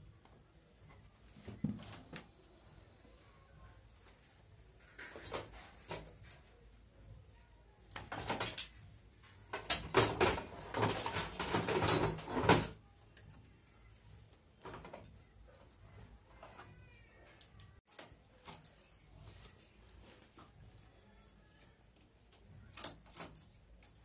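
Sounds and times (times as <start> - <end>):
knitting machine clicks and knocks: 9.5 - 12.8
knitting machine rattling and scraping: 9.5 - 12.8.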